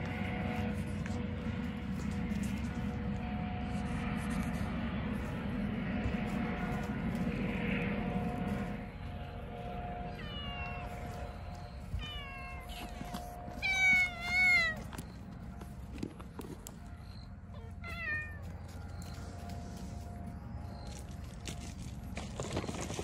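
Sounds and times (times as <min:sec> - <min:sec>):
cat meowing: 0:10.2 - 0:11.0, 0:12.0 - 0:14.8, 0:17.6 - 0:18.4.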